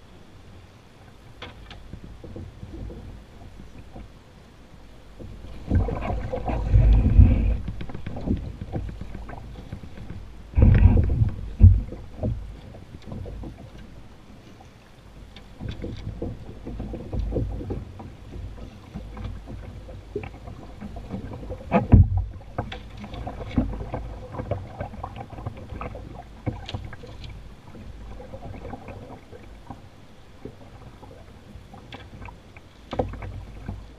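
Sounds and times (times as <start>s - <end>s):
running water around hull: 0.0s - 33.9s
low thumps: 5.2s - 12.6s.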